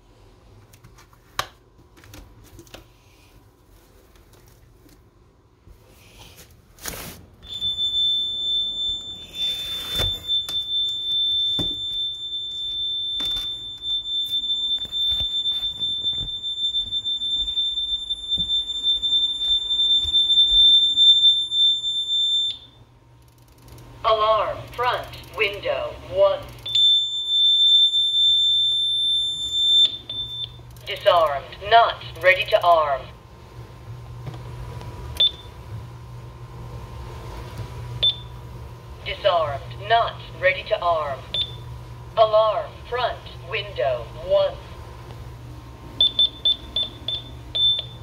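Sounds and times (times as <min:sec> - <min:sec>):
alarm siren high-pitched tone: 0:07.4 - 0:22.8, 0:26.7 - 0:31.4.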